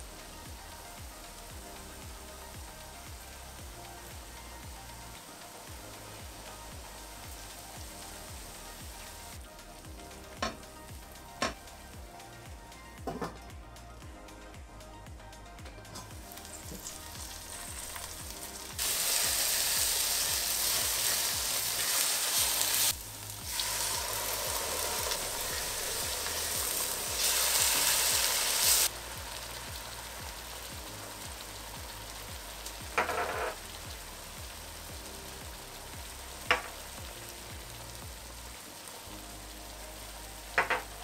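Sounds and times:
food sizzling in a pot: 0.0 - 13.5, 15.9 - 41.0
water being added: 16.6 - 30.0.

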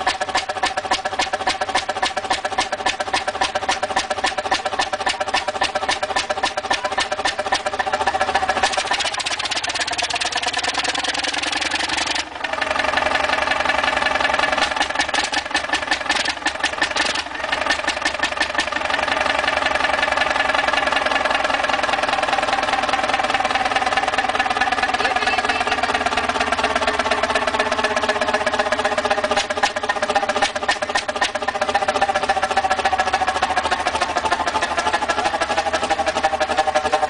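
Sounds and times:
stationary engine exhaust pulsing: 0.0 - 37.0.

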